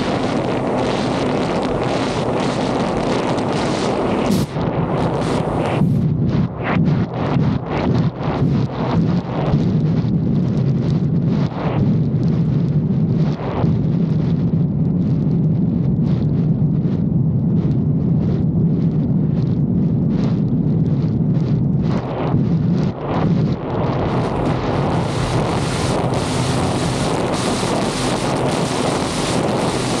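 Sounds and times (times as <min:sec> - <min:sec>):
jet ski engine droning: 0:00.0 - 0:05.7, 0:24.1 - 0:30.0
wind buffeting microphone: 0:00.0 - 0:30.0.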